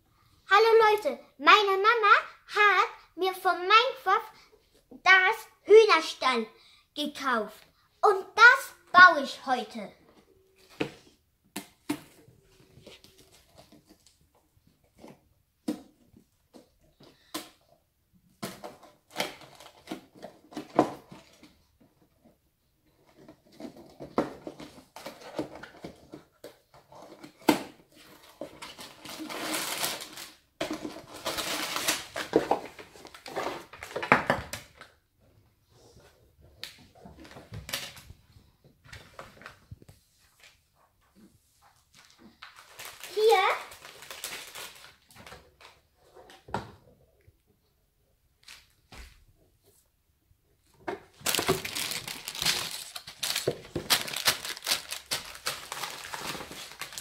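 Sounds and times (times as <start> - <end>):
packaging rustling and tearing: 26.9 - 34.1, 42.0 - 45.8, 51.1 - 57.0.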